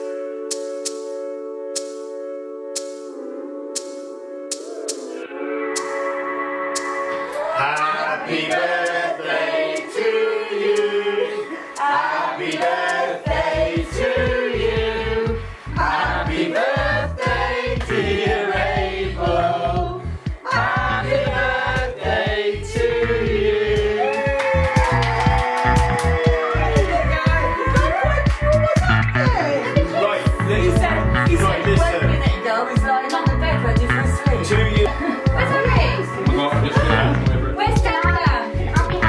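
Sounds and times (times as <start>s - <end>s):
music with singing voices: 0.0s - 39.0s
deep bass beat: 12.7s - 32.4s, 33.3s - 39.0s.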